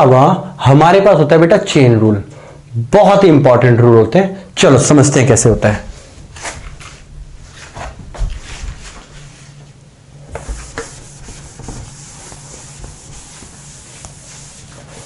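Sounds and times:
cloth rubbing on whiteboard: 6.0s - 9.6s, 10.3s - 15.0s.

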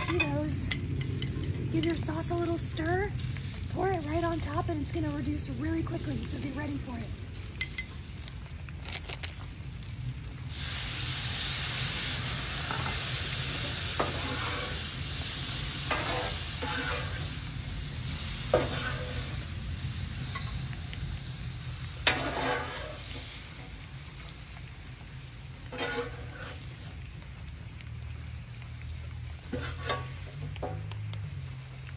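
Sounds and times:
sauce sizzling on griddle: 0.0s - 31.9s
metal spatula scraping griddle: 12.7s - 17.5s, 18.1s - 19.5s, 22.0s - 23.4s, 25.6s - 26.8s, 29.4s - 30.8s.

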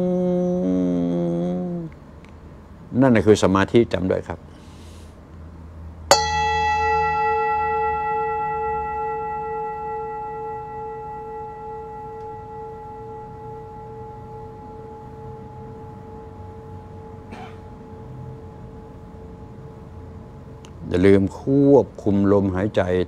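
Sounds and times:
meditation bell ringing: 6.1s - 21.7s.

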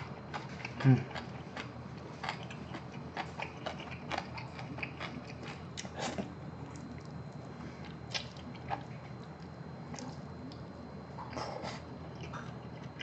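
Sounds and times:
wet chewing: 0.0s - 7.2s.

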